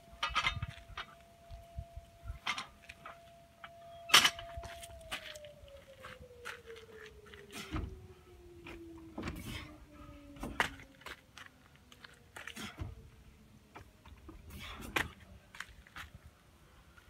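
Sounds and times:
faint falling whine: 0:00.0 - 0:14.3.

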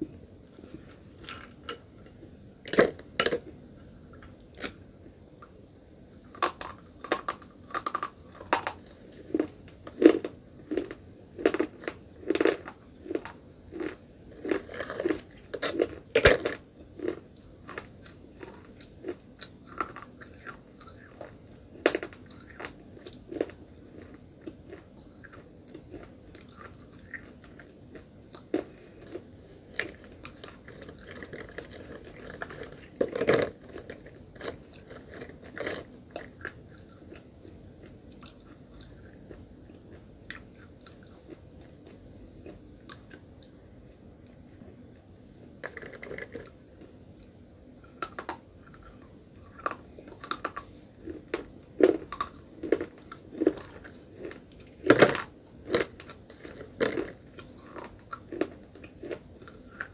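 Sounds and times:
grinding chews: 0:00.0 - 0:05.1, 0:06.3 - 0:43.7, 0:45.6 - 0:59.9
person crunching slate pencils: 0:06.3 - 0:37.2, 0:45.6 - 0:46.6, 0:47.8 - 0:59.9.

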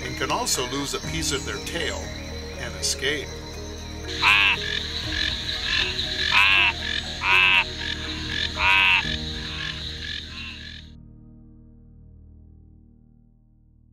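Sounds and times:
background frog chorus: 0:00.0 - 0:10.9
frog calling: 0:00.0 - 0:10.9.

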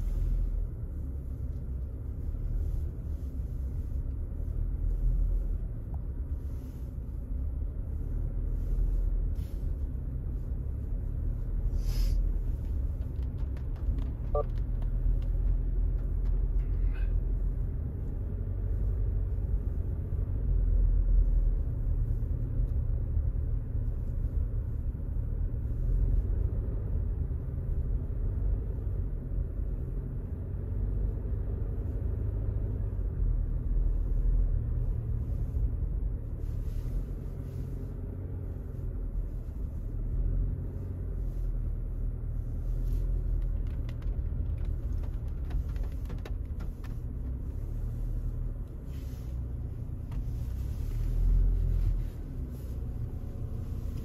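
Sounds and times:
vehicle engine and tyres rumbling: 0:00.0 - 0:54.0
faint crackles: 0:36.4 - 0:54.0.

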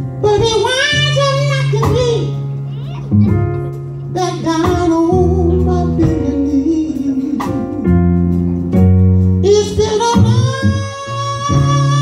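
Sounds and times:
person singing gospel: 0:00.0 - 0:02.5, 0:04.0 - 0:08.6, 0:09.4 - 0:12.0
sustained low instrumental chords: 0:00.0 - 0:12.0.

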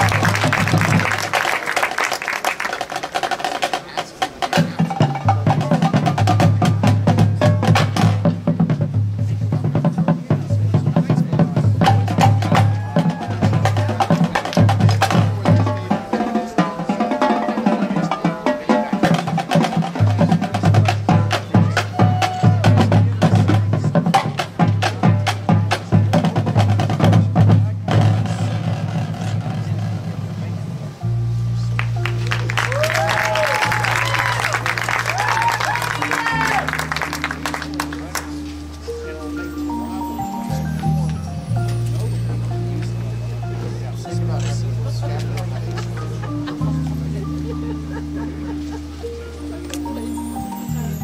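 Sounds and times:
marching band drums: 0:00.0 - 0:31.0, 0:31.8 - 0:42.8
low sustained bass notes: 0:29.6 - 0:51.0.

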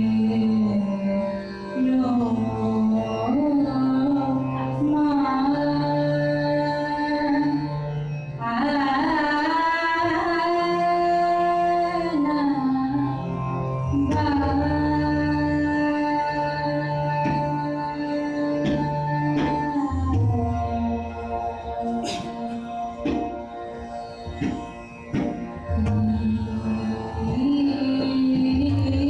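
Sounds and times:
tabla: 0:00.0 - 0:29.0
woman singing classical vocals: 0:14.0 - 0:21.2, 0:25.8 - 0:29.0.

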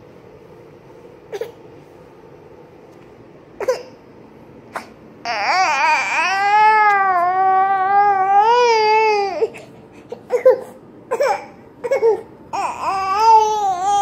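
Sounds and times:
toddler crying: 0:05.3 - 0:09.6, 0:10.2 - 0:14.0.

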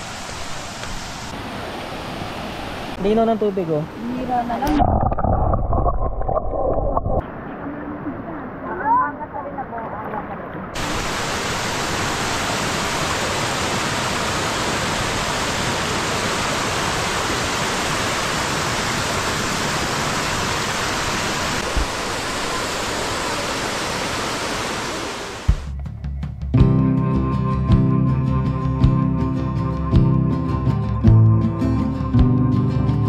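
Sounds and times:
waterfall rushing: 0:00.0 - 0:04.8, 0:10.7 - 0:25.7.

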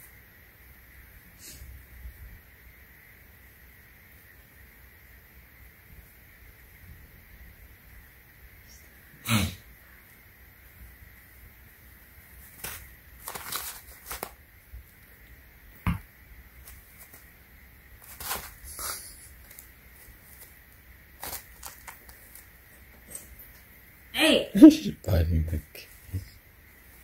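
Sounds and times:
paws rustling on plastic pads: 0:12.4 - 0:14.4, 0:18.0 - 0:22.7.

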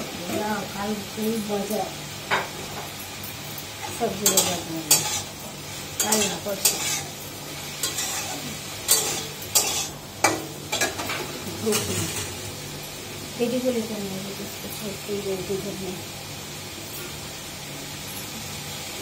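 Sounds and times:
faint frying sizzle: 0:00.0 - 0:19.0
spatula scraping steel pan: 0:06.1 - 0:07.1, 0:07.8 - 0:09.9.

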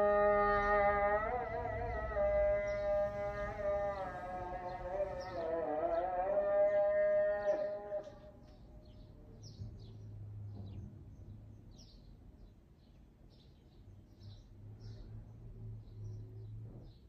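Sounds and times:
sung call to prayer: 0:00.0 - 0:09.2.

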